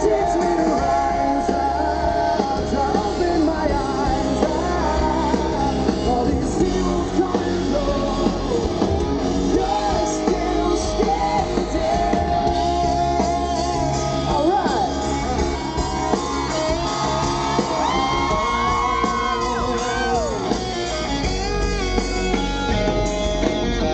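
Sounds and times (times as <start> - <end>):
man singing into a microphone: 0.0 - 8.9, 9.5 - 14.9
electric guitar: 0.0 - 23.9
live rock band playing: 0.0 - 23.9.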